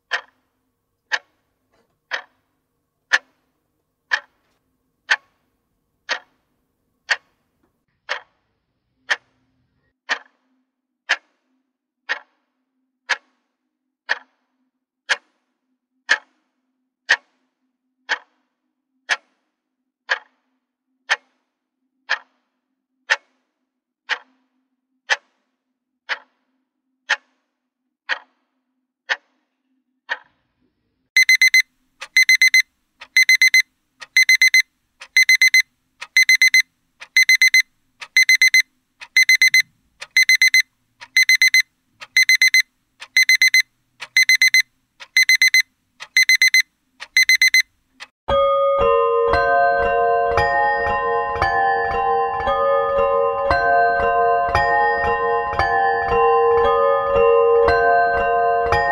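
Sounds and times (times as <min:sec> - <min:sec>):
clock ticking: 0:00.1 - 0:00.4, 0:01.1 - 0:01.4, 0:02.1 - 0:02.4, 0:03.1 - 0:03.4, 0:04.1 - 0:04.4, 0:05.1 - 0:05.4, 0:06.1 - 0:06.3, 0:07.1 - 0:07.4, 0:08.0 - 0:08.3, 0:12.1 - 0:12.3, 0:14.1 - 0:14.3, 0:18.1 - 0:18.3, 0:20.1 - 0:20.3, 0:22.1 - 0:22.3, 0:24.1 - 0:24.3, 0:26.1 - 0:26.3, 0:31.2 - 0:48.1
digital alarm clock beeping: 0:31.2 - 0:47.7.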